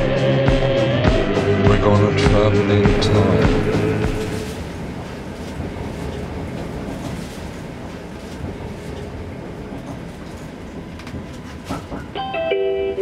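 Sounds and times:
train rumble inside carriage: 0:00.0 - 0:13.0
faint clicks: 0:09.8 - 0:12.2.

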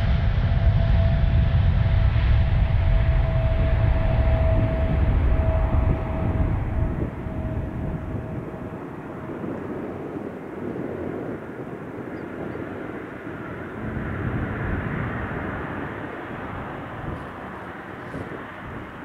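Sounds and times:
jet engines rumbling and hissing: 0:00.0 - 0:19.0.

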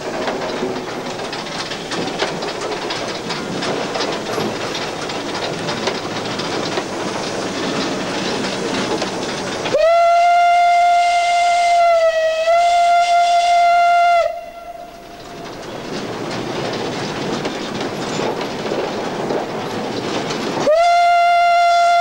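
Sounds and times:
steam locomotive rattling: 0:00.0 - 0:22.0
steam whistle: 0:09.7 - 0:15.1, 0:20.6 - 0:22.0.

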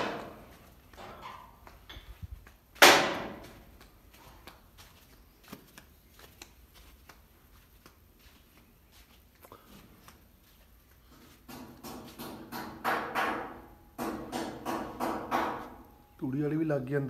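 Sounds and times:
loud sharp bang: 0:02.8 - 0:03.4.

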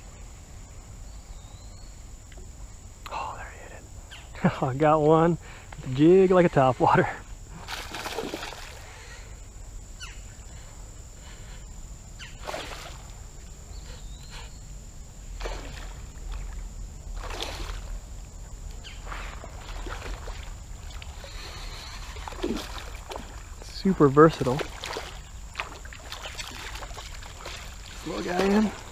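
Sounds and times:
water splashing: 0:07.6 - 0:08.9, 0:12.4 - 0:13.2, 0:15.3 - 0:18.0, 0:19.0 - 0:28.9.

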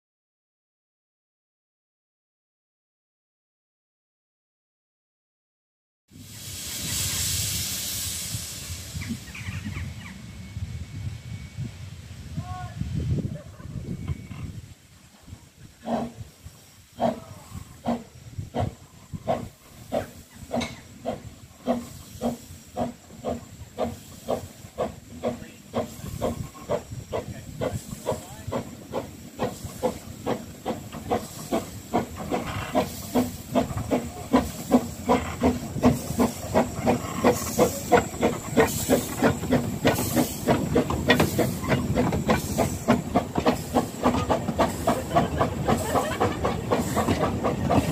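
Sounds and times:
steam locomotive chuffing: 0:06.1 - 0:11.6, 0:15.2 - 0:47.9
steam hiss: 0:06.1 - 0:13.0, 0:14.6 - 0:47.9.

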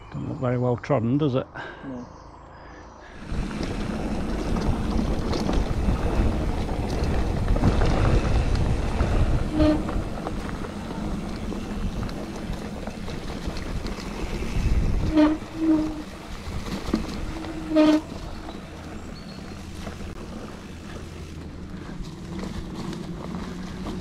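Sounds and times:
bike tyre and frame rumble: 0:03.0 - 0:24.0
wind on microphone: 0:03.2 - 0:18.6.

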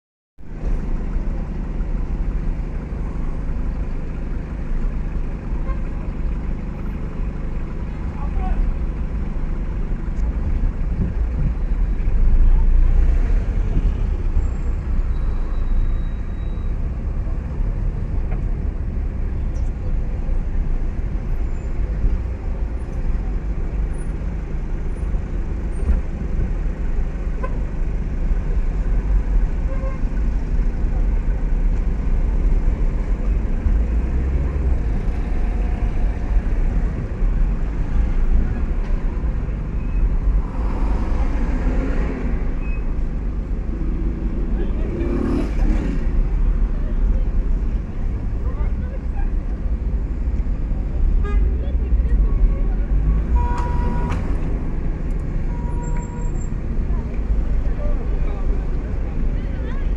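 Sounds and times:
road noise: 0:00.4 - 0:59.9
car engines idling in traffic: 0:00.5 - 0:59.9.

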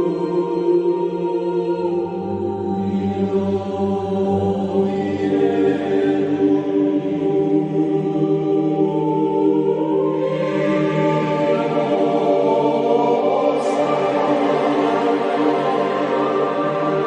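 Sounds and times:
slow choir-like chanting: 0:00.0 - 0:17.0
long held notes: 0:07.5 - 0:17.0.

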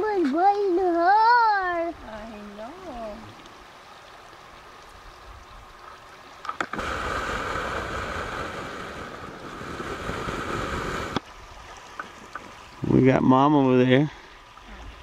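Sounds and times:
river flowing: 0:00.0 - 0:15.0
loud rushing noise on microphone: 0:06.8 - 0:11.2.

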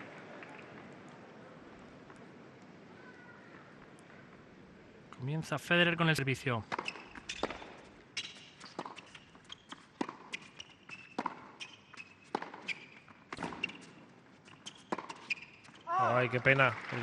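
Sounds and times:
racquets striking tennis ball: 0:06.6 - 0:14.0, 0:14.6 - 0:17.0
tennis ball bouncing: 0:06.7 - 0:14.0, 0:14.7 - 0:15.8.

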